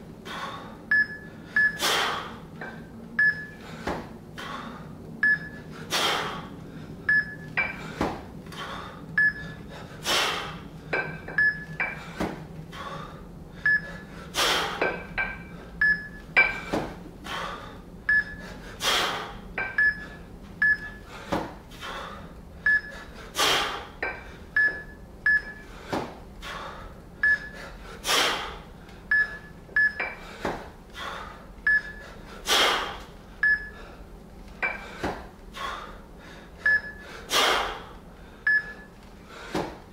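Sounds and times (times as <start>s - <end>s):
heavy rhythmic breathing: 0.0s - 39.9s
short electronic beeps: 3.2s - 3.6s, 5.2s - 5.6s, 7.1s - 7.5s, 9.2s - 9.4s, 19.8s - 21.0s, 24.6s - 25.6s, 31.7s - 32.0s, 36.7s - 37.0s, 38.5s - 38.9s.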